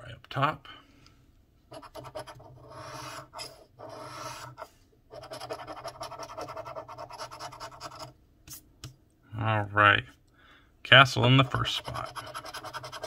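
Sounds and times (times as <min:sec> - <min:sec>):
scratching a scratch-off ticket: 0:01.7 - 0:08.1, 0:11.4 - 0:13.0.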